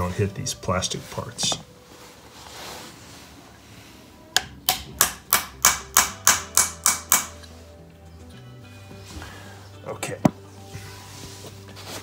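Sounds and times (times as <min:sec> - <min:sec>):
hammer tapping metal tool: 0:04.4 - 0:07.5.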